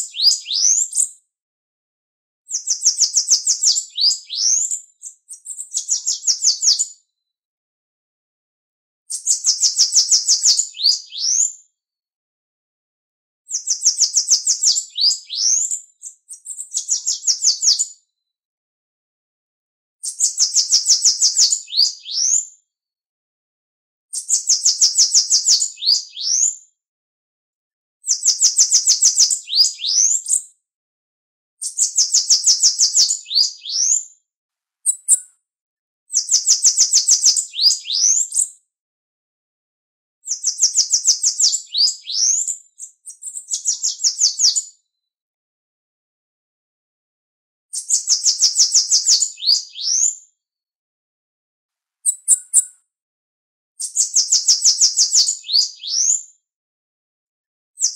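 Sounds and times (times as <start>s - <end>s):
bird singing rapid phrases: 0.0s - 1.2s, 2.5s - 7.0s, 9.1s - 11.5s, 13.5s - 17.9s, 20.0s - 22.4s, 24.1s - 26.5s, 28.0s - 30.5s, 31.6s - 34.0s, 34.8s - 35.3s, 36.1s - 38.6s, 40.2s - 44.7s, 47.7s - 50.2s, 52.0s - 52.8s, 53.8s - 56.2s.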